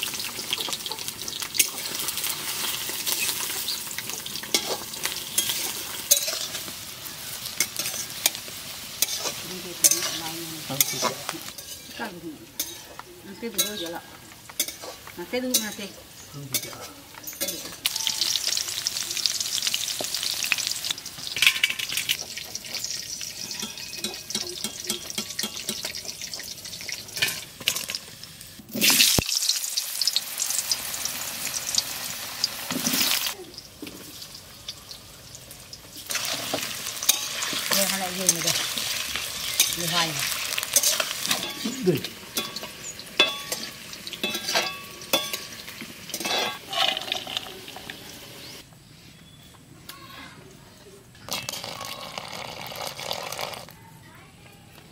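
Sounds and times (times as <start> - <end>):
oil sizzling in a wok: 0.0 - 48.6
metal spatula stirring in pan: 0.2 - 28.0, 36.0 - 48.0.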